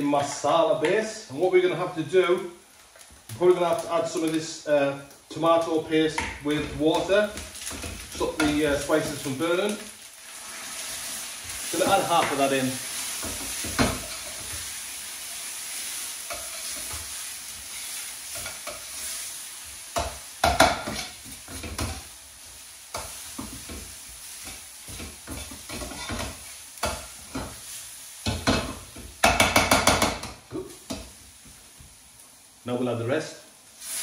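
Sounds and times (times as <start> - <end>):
masala sizzling in oil: 0.0 - 34.0
utensil stirring and scraping pan: 10.2 - 31.2.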